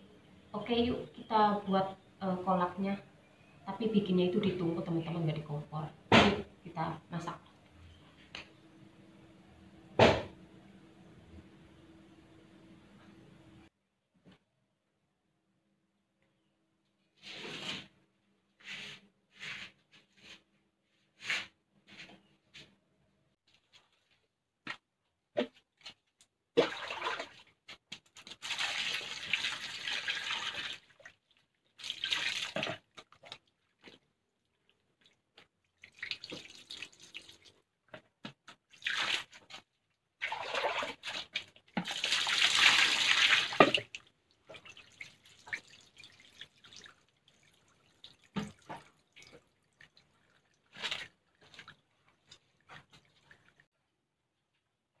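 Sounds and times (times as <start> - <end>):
water pouring and splashing: 26.6 - 37.7, 38.5 - 53.7.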